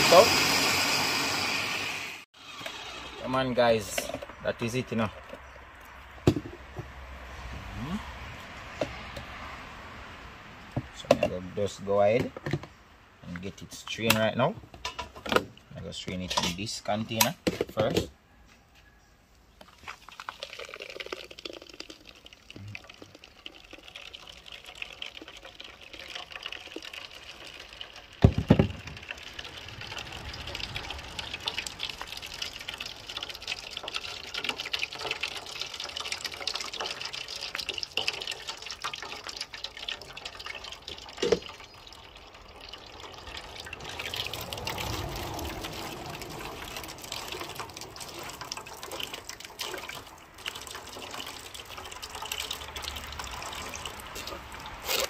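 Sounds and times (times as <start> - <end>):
juice trickling into metal bowl: 19.5 - 55.0.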